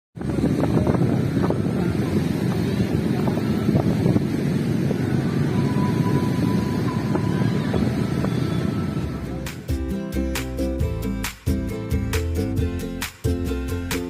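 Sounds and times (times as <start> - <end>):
wind buffeting microphone: 0.2 - 9.7
faint high tone: 4.9 - 9.3.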